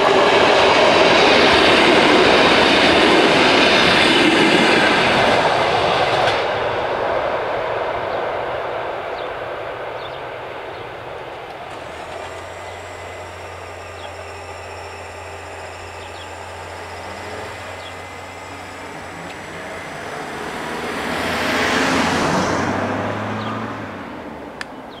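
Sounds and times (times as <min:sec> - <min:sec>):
low steady hum: 0:10.4 - 0:22.6
car passing close by: 0:16.8 - 0:25.0.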